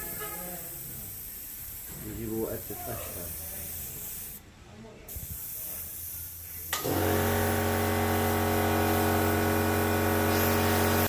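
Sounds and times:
airbrush air hiss: 0:00.0 - 0:04.4, 0:05.1 - 0:09.4, 0:10.2 - 0:11.0
air compressor humming: 0:05.4 - 0:11.0.

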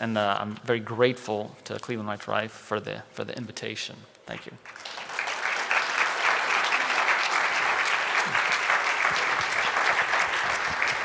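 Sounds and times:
audience applauding: 0:04.7 - 0:11.0.

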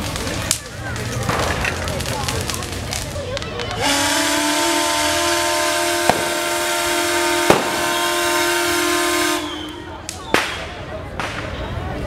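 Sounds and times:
steam whistle blowing: 0:03.8 - 0:10.0
sharp bang: 0:06.0 - 0:06.4, 0:07.4 - 0:08.0.

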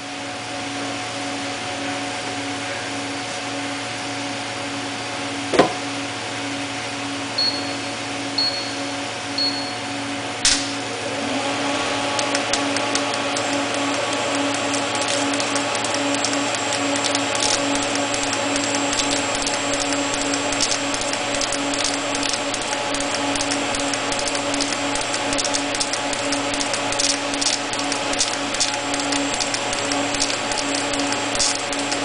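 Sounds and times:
welding arc hiss and hum: 0:00.0 - 0:32.0
welding crackles: 0:12.0 - 0:32.0.

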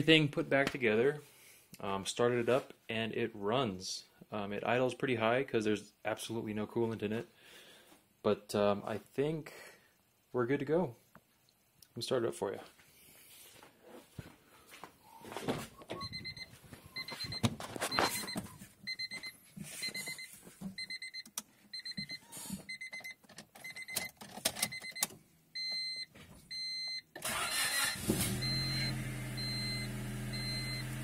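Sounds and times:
car engine cranking and idling: 0:27.2 - 0:31.0.

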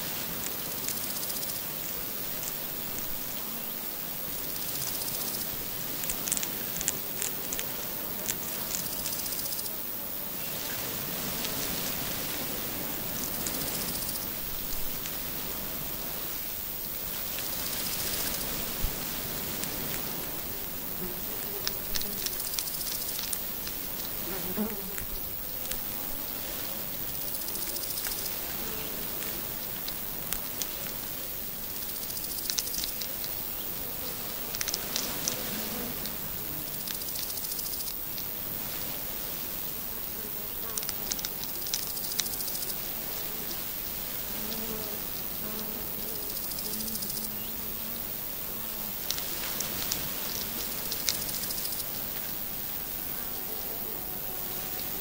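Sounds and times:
outdoor hiss: 0:00.0 - 0:55.0
hedgehogs chewing: 0:04.7 - 0:09.6
fly buzzing: 0:17.5 - 0:29.7, 0:32.5 - 0:36.9, 0:39.8 - 0:55.0.

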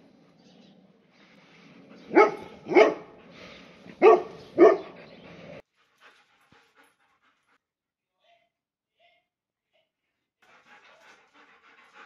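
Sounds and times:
dog barking: 0:02.1 - 0:03.2, 0:04.0 - 0:05.0.

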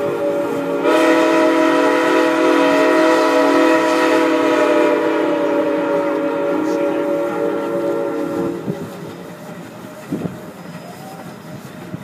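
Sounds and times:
steam locomotive whistle: 0:00.0 - 0:09.0.

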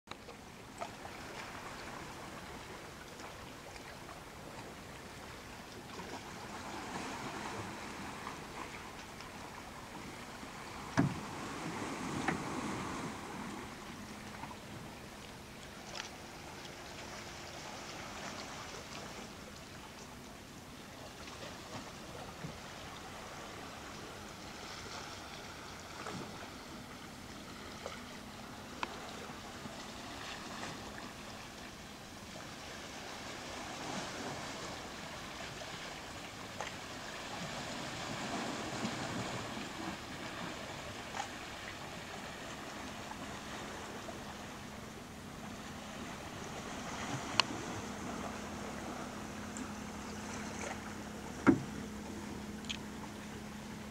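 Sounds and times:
water lapping around canoe: 0:00.1 - 0:53.9
small clicks: 0:52.6 - 0:52.8.

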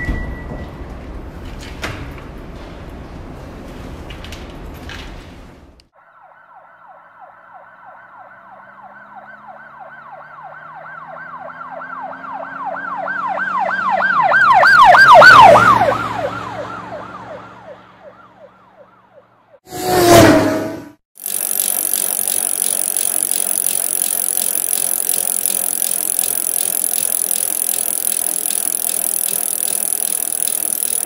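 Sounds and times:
emergency siren yelping: 0:06.0 - 0:19.0.

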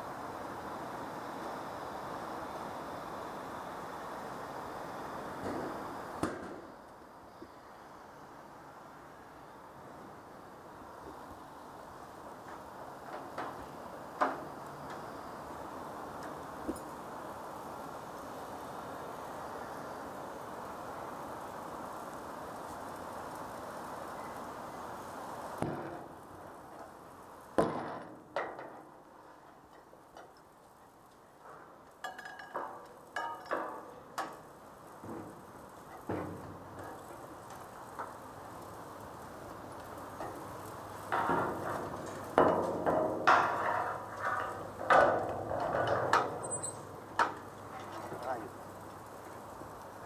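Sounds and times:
steel clanking against steel: 0:32.0 - 0:34.4, 0:41.1 - 0:48.4.

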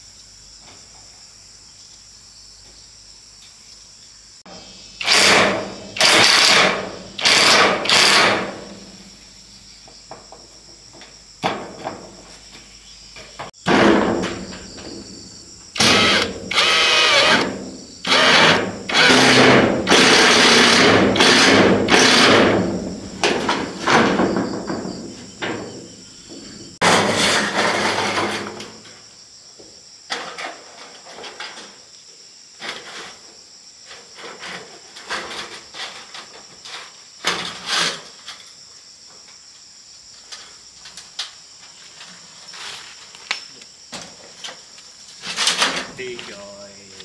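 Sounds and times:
insects chirring: 0:00.0 - 0:47.0
power drill running: 0:05.0 - 0:08.6, 0:15.8 - 0:17.5, 0:18.1 - 0:22.5.

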